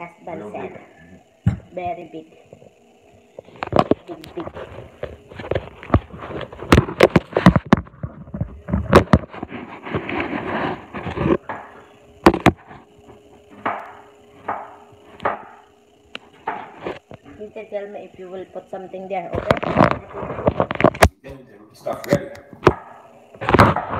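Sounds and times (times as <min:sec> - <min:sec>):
knocks and taps on counter: 0:01.4 - 0:01.7.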